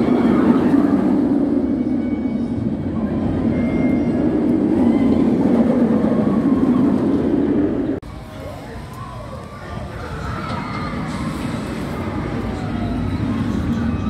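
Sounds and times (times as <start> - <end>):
roller coaster train rumbling: 0.0 - 14.0.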